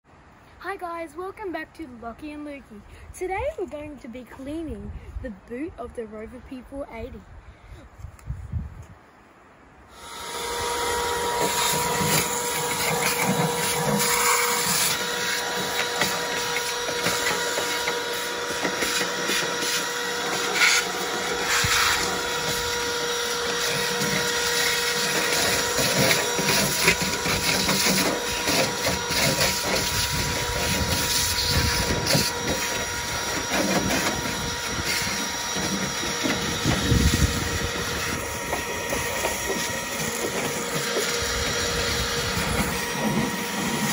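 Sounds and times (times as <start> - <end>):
rushing air hiss: 9.9 - 43.9
vacuum cleaner motor whine: 9.9 - 43.9.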